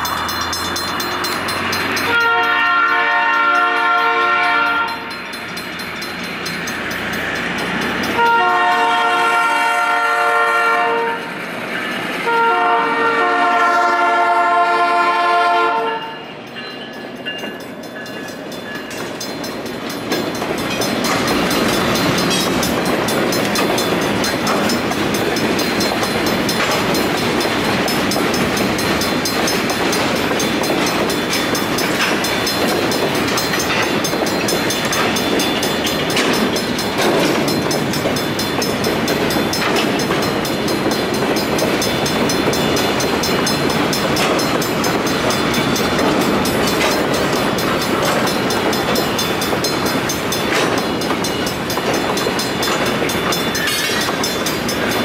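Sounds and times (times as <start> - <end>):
crossing warning bell: 0.0 - 55.0
steel wheels rumbling on rail: 0.0 - 55.0
wheels clicking over rail joints: 16.5 - 55.0.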